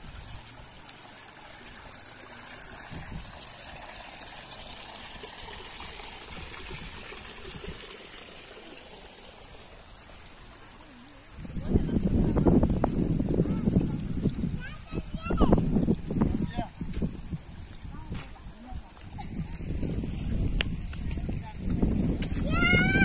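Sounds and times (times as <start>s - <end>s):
stream trickling over stones: 0.0s - 23.0s.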